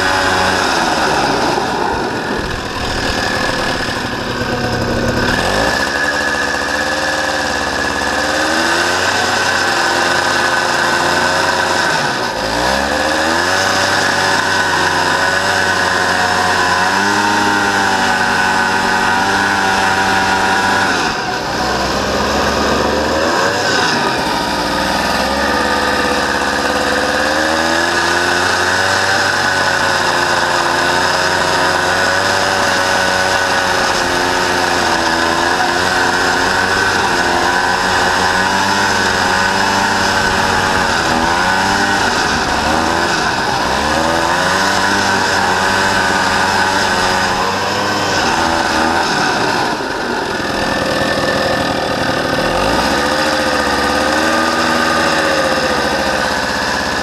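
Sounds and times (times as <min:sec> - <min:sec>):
buggy engine revving: 0:00.0 - 0:57.0.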